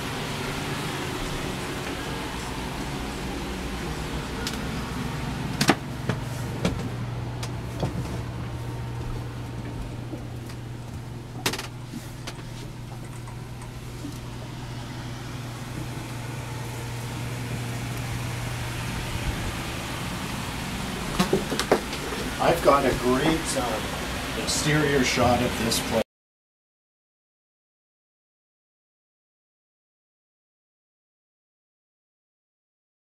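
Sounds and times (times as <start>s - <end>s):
low mechanical hum: 0.0s - 26.0s.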